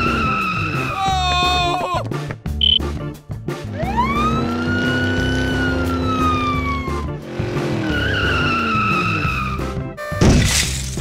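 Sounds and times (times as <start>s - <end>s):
siren wail: 0.0s - 1.0s, 3.7s - 7.2s
background music with steady beat: 1.2s - 4.6s.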